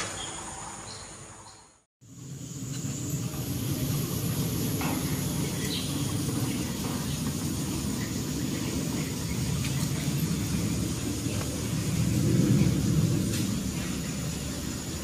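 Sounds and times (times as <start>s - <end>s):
low rumbling background noise: 0.0s - 15.0s.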